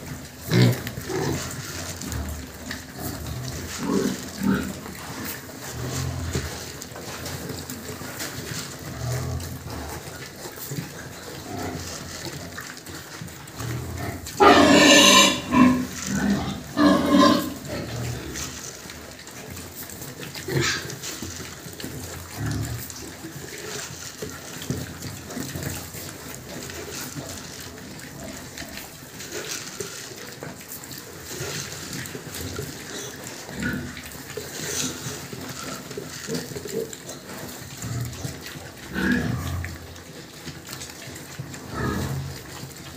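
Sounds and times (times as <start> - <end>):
pigs feeding on grain: 0.0 - 42.9
pig squealing: 14.2 - 17.7.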